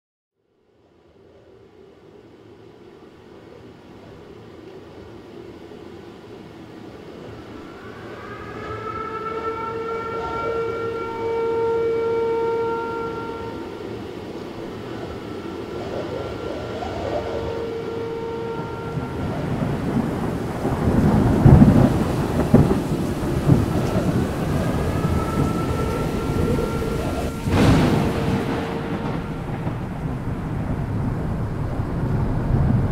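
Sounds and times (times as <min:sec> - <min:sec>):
droning tone with overtones: 0:01.3 - 0:32.9
deep rumble: 0:11.2 - 0:32.9.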